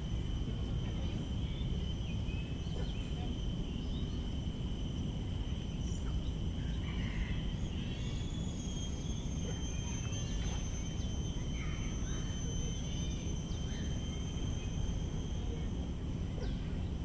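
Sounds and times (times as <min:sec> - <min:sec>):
continuous low rumble: 0:00.0 - 0:17.0
high insect drone: 0:00.0 - 0:17.0
faint bird chirps: 0:05.6 - 0:17.0.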